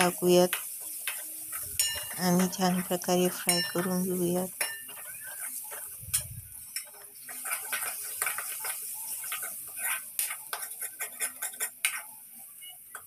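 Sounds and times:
oil sizzling: 0.0s - 13.0s
ladle scraping metal pan: 7.3s - 12.1s.

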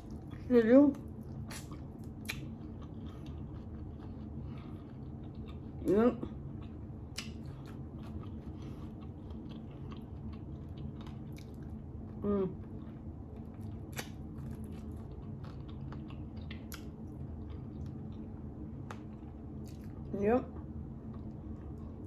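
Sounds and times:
chewing and biting: 0.0s - 5.9s, 6.5s - 20.1s
wet mouth clicks and smacks: 1.5s - 2.6s.

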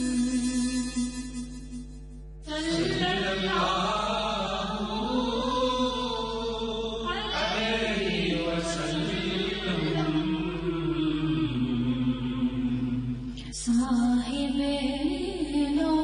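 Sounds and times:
person chanting: 2.5s - 15.0s.

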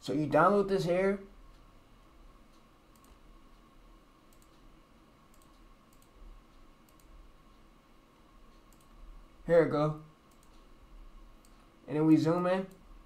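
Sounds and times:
computer mouse clicks: 2.5s - 3.6s, 4.3s - 4.7s, 5.3s - 6.2s, 6.8s - 7.2s, 8.5s - 9.0s, 10.3s - 10.7s, 11.4s - 11.7s.

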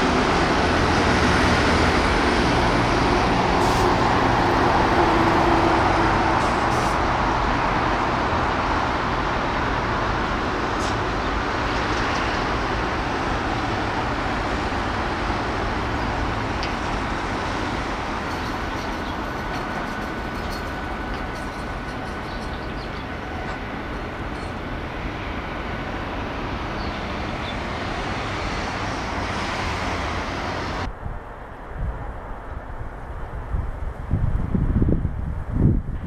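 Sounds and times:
passing vehicle engine and tyres: 0.0s - 36.0s.

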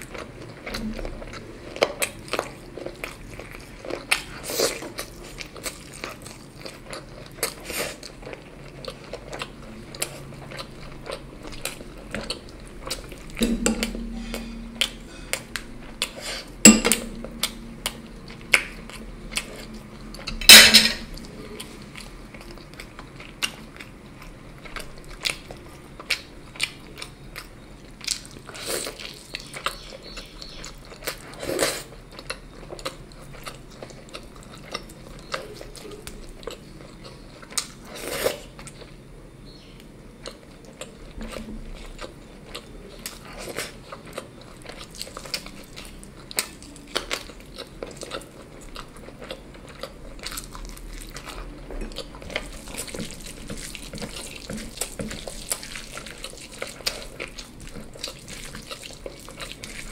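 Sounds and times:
chewing: 0.0s - 39.0s, 39.8s - 59.9s
cutlery clinking on a plate: 20.4s - 21.1s.

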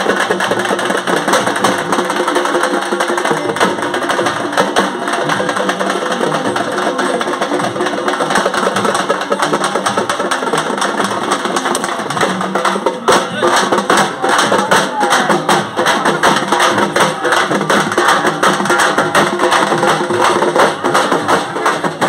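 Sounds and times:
music with fast drumming: 0.0s - 22.0s.

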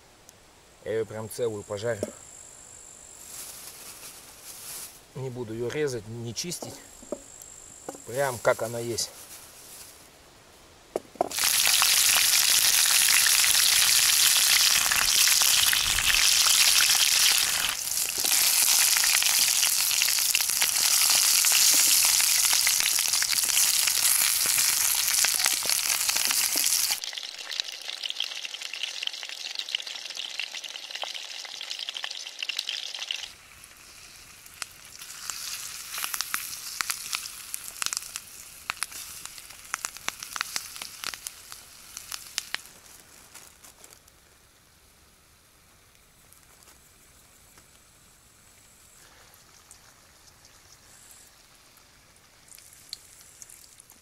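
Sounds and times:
crackles: 1.3s - 10.2s, 11.2s - 54.0s
potatoes sizzling in a pan: 11.2s - 45.6s, 46.2s - 54.0s.

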